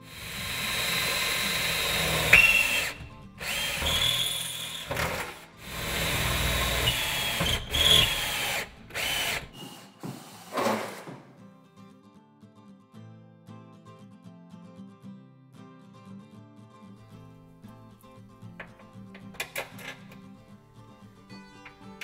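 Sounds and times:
power drill boring through metal: 0.0 - 11.1.

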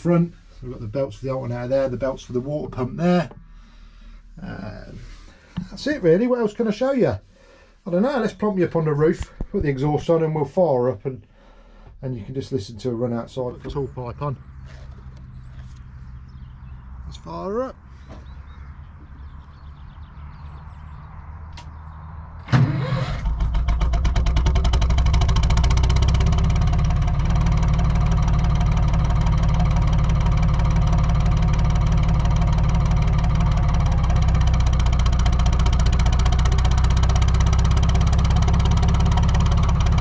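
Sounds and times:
diesel engine starting: 12.9 - 40.0.

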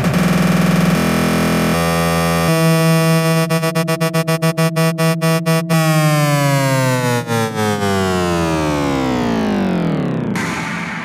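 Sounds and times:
techno music: 2.8 - 11.0.

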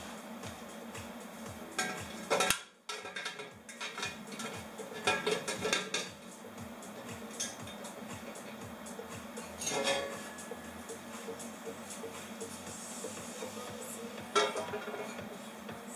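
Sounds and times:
metal pipes clinking and scraping: 1.8 - 6.2, 7.3 - 7.8, 9.5 - 10.4, 14.4 - 15.2
sharp metal clanks: 9.5 - 10.5.

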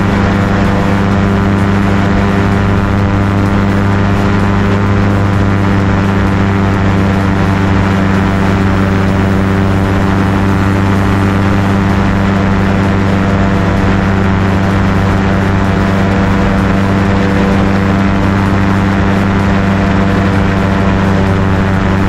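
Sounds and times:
light aircraft engine and propeller: 0.0 - 22.0.

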